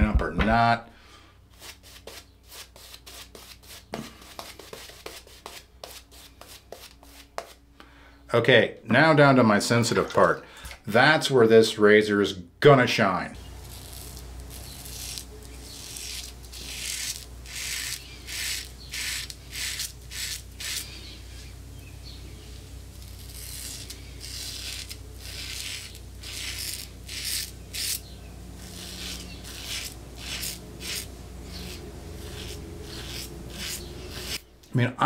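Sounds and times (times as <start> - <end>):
razor scraping stubble: 1.5 - 7.6, 13.4 - 34.5.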